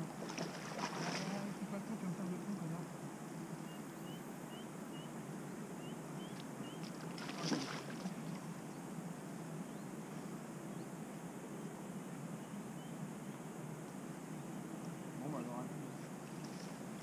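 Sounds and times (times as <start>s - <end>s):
fish splashing and thrashing: 0.2s - 1.5s, 6.9s - 8.2s
rising bird chirps: 3.6s - 6.9s.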